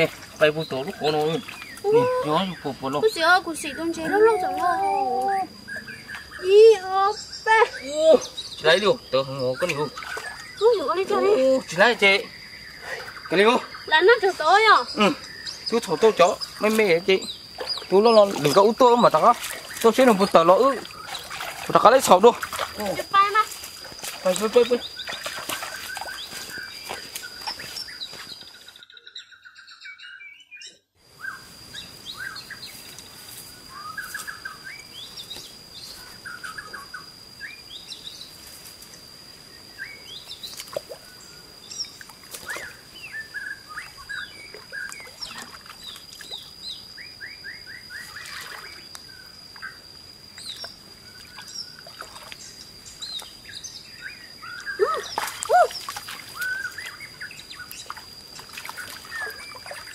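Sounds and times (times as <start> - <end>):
birds chirping and trilling: 0.0 - 59.9.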